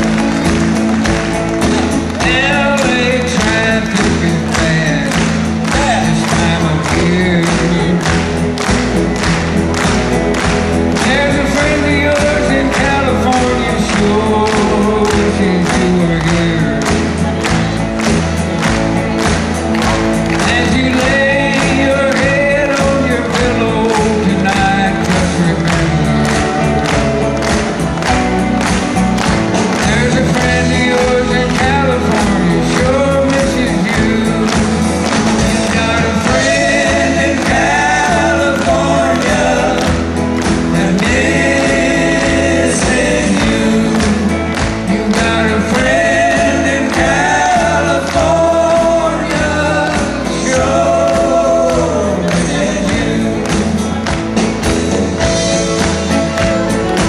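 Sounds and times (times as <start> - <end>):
acoustic and electric guitars: 0.0 - 57.0
steady drum beat: 0.0 - 57.0
person singing lead: 29.6 - 54.1.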